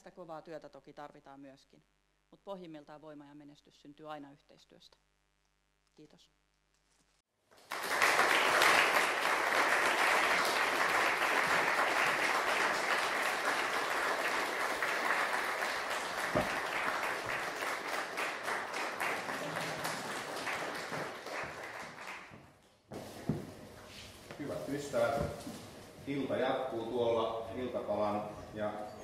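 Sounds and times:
audience applauding: 7.6s - 22.4s.

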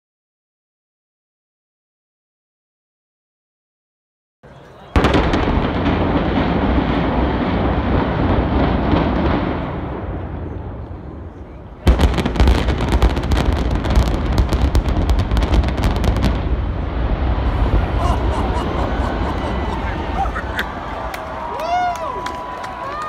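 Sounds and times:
heavy low rumble: 13.7s - 21.5s.

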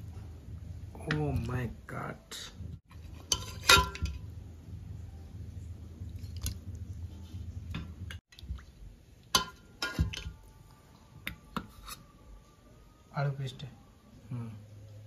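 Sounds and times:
stirring and handling sounds: 0.0s - 12.2s
ladle clinking against steel pot: 2.9s - 4.3s, 9.3s - 10.4s.

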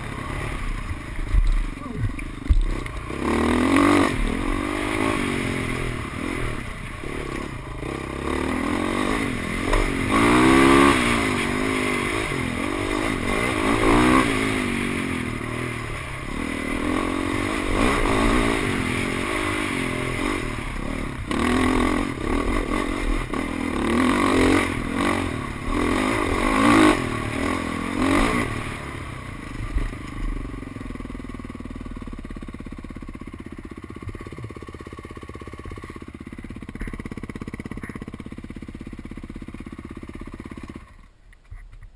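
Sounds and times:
dirt bike engine revving: 0.0s - 30.6s
bike knocks and rattles: 35.7s - 38.6s.

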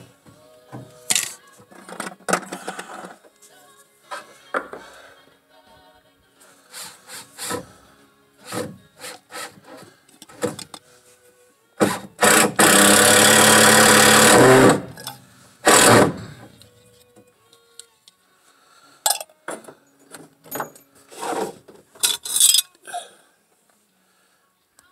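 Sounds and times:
harsh rasping on pipe: 6.7s - 7.8s, 8.4s - 9.9s, 21.1s - 21.6s
scraping on plastic pipe: 21.1s - 21.8s.

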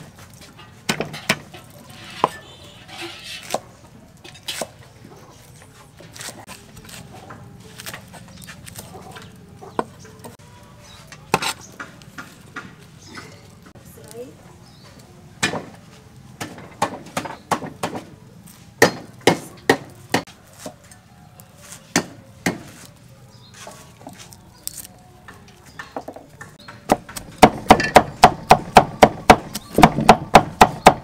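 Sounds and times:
garlic cloves peeled by hand: 1.2s - 3.7s, 4.4s - 14.2s, 17.9s - 31.0s
cleaver chopping on wooden board: 18.8s - 20.7s, 25.8s - 31.0s.

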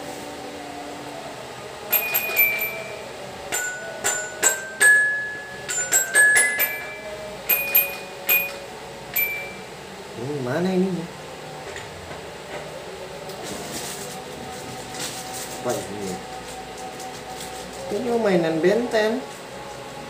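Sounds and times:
toy key clicks: 1.9s - 2.8s
toy xylophone notes: 1.9s - 9.7s.

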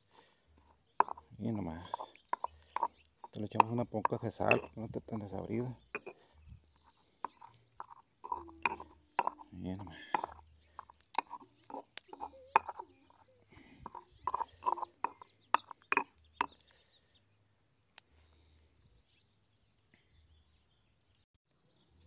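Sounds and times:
stone pestle grinding in mortar: 0.6s - 5.3s, 5.9s - 6.2s, 6.8s - 16.6s.

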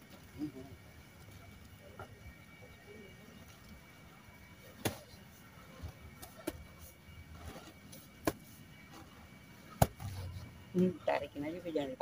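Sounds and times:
hoes striking earth: 4.8s - 5.2s, 9.8s - 10.4s.

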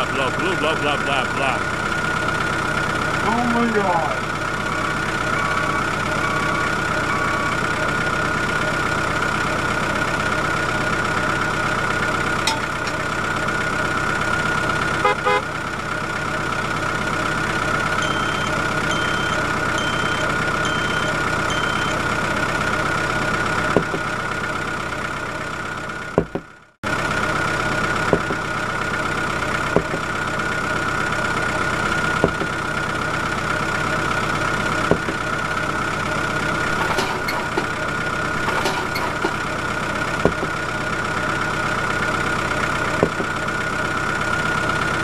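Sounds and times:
vehicle engine idling: 0.0s - 45.0s
short high beeps: 18.0s - 22.0s.

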